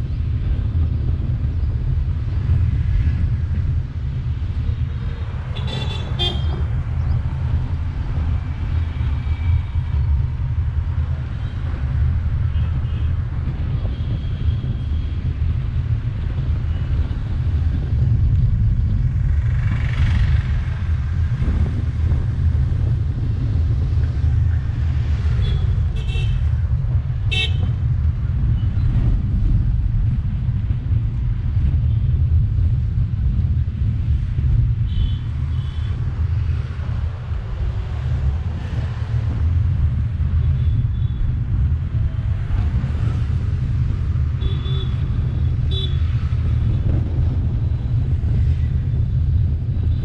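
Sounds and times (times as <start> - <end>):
car driving low rumble: 0.0 - 50.0
vehicle horn toots: 5.6 - 6.6.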